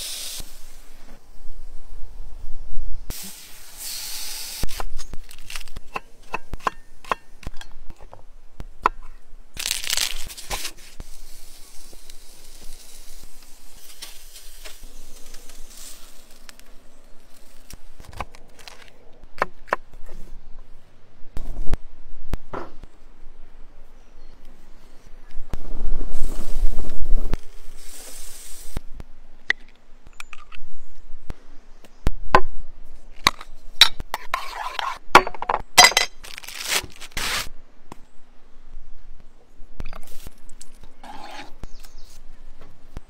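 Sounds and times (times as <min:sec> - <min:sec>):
short hissing bursts: 0:00.0 - 0:01.0, 0:03.1 - 0:04.9, 0:27.6 - 0:28.8.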